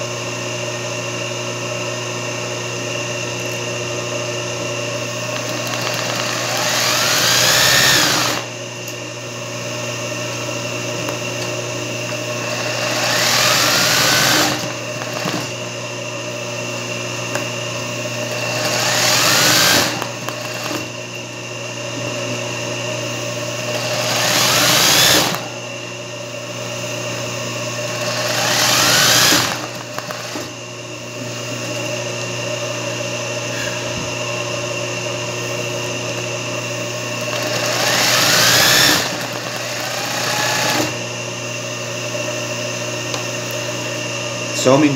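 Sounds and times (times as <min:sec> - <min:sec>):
motor hum: 0:01.1 - 0:44.9
sewing machine stitching whine: 0:05.3 - 0:08.5, 0:12.3 - 0:15.6, 0:18.2 - 0:20.9, 0:23.7 - 0:25.5, 0:27.8 - 0:30.6, 0:37.2 - 0:41.0.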